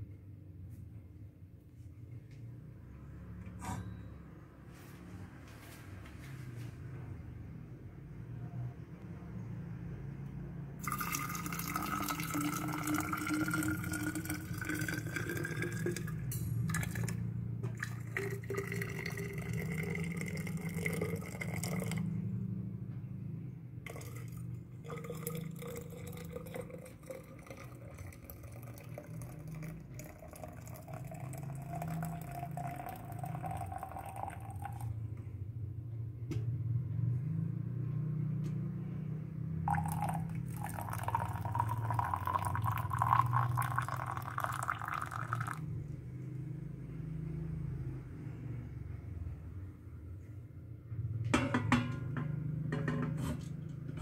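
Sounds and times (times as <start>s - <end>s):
water pouring into flask: 10.8s - 22.0s, 23.9s - 34.9s, 39.7s - 45.6s.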